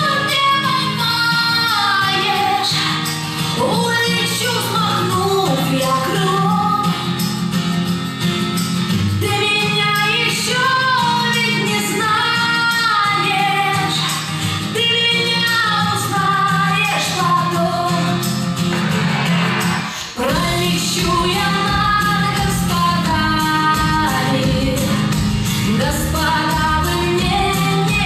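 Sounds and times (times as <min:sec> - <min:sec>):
woman singing slow melody: 0:03.6 - 0:07.1, 0:20.2 - 0:28.0.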